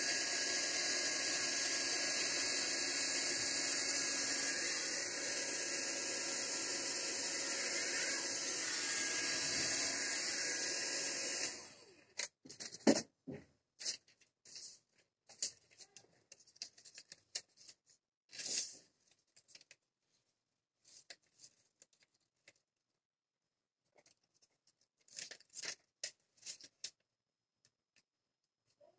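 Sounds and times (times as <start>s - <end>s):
coil-winding machine running: 0.0s - 11.9s
paper rustling: 13.8s - 22.7s, 23.9s - 27.1s.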